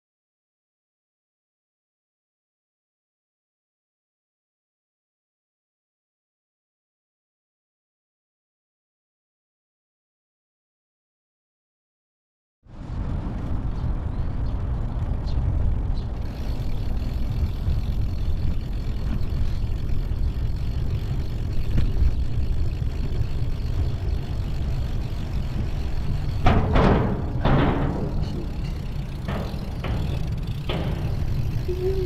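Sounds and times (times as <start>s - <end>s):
wind rumble on microphone: 12.7s - 32.0s.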